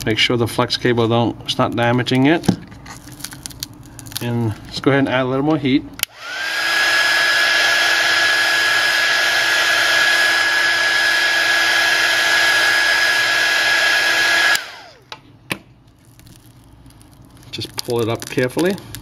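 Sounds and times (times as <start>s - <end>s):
hot-air blower running: 6.0s - 15.2s.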